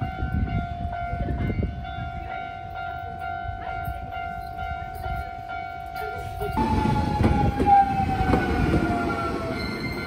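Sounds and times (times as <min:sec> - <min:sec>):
level crossing alarm ringing: 0:05.2 - 0:10.0.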